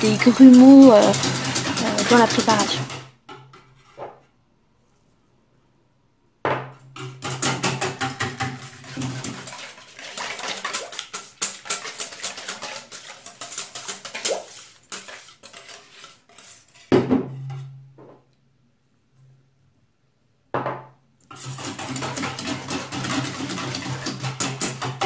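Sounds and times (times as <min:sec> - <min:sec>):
whisk clinking in metal bowl: 0:00.0 - 0:03.1, 0:07.0 - 0:17.6, 0:21.3 - 0:25.0.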